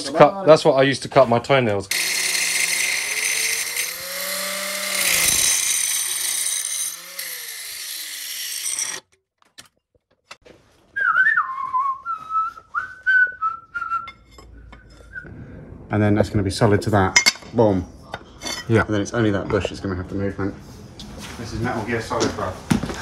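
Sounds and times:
angle grinder cutting metal: 1.9 - 9.1
person whistling a tune: 10.9 - 14.2.

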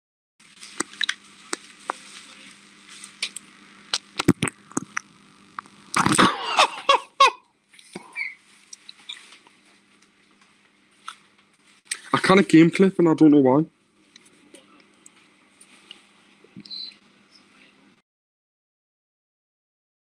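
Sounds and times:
steady low hum: 0.4 - 18.0.

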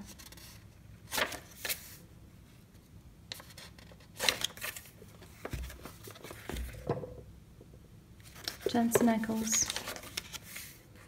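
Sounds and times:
sketchbook pages turning: 0.0 - 2.0, 3.3 - 6.8, 8.2 - 11.0.

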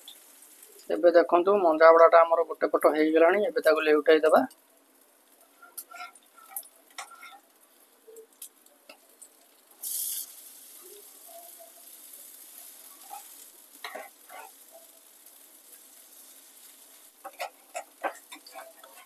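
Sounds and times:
fritters sizzling in oil: 0.0 - 19.0
spatula tapping and scraping pan: 5.3 - 7.6, 12.8 - 15.1, 15.7 - 19.0.

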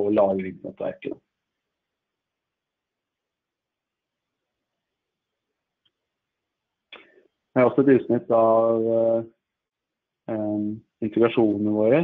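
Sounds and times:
faint even hiss: 6.9 - 9.2, 10.3 - 12.0.

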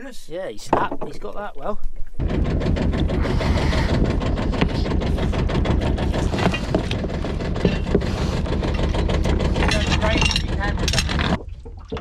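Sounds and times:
boat engine idling: 2.2 - 11.6
anchor chain clinks and knocks: 8.6 - 11.3.

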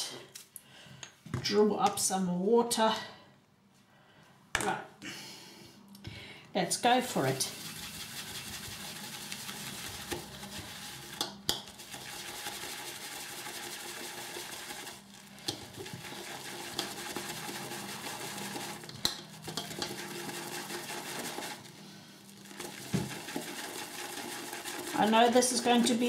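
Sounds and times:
shaving brush churning lather: 7.2 - 26.0.

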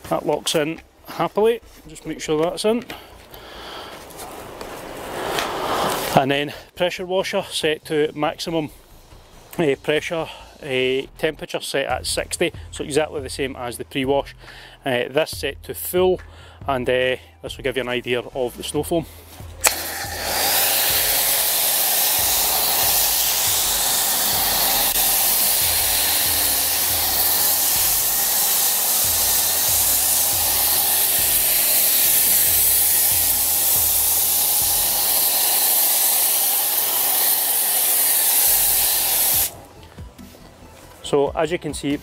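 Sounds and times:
pressure washer spraying foam: 4.5 - 6.2, 19.6 - 39.6.

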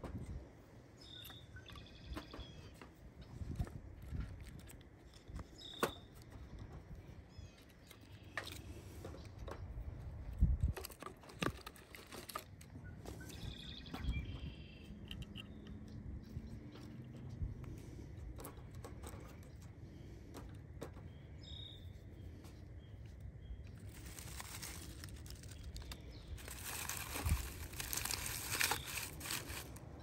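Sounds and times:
small birds chirping: 0.8 - 10.8, 12.6 - 30.0
low outdoor rumble: 11.6 - 30.0.

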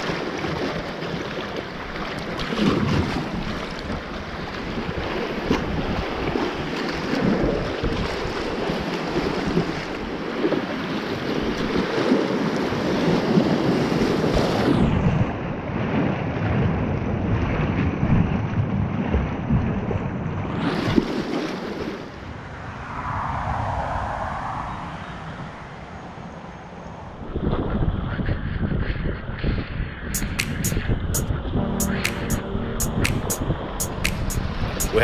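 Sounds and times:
wind noise on microphone: 2.4 - 21.2, 27.2 - 31.7.

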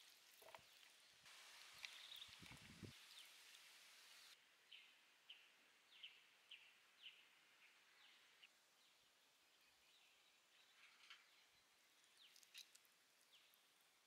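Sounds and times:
faint hiss: 0.0 - 8.8
bird chirps: 1.6 - 3.4.

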